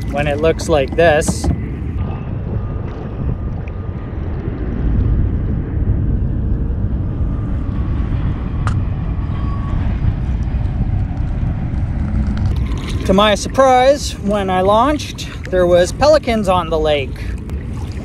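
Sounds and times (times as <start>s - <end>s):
water washing against a kayak: 0.0s - 1.7s, 12.5s - 18.0s
wind buffeting the microphone: 0.0s - 18.0s.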